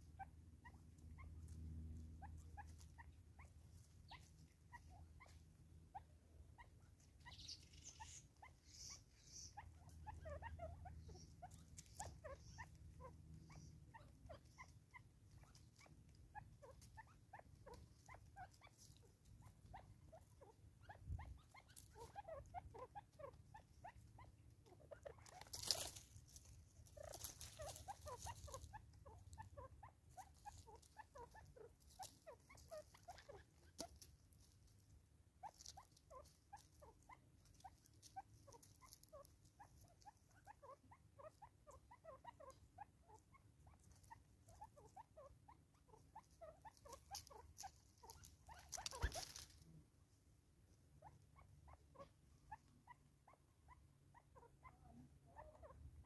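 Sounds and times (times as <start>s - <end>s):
rustle: 0.0s - 55.8s
birds pecking at seed: 6.9s - 42.6s, 43.2s - 49.7s.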